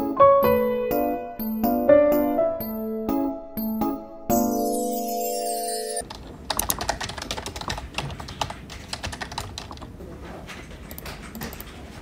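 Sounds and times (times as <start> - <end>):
music jingle chord: 0.0 - 6.0
typing on computer keyboard: 6.0 - 10.0, 10.8 - 11.8.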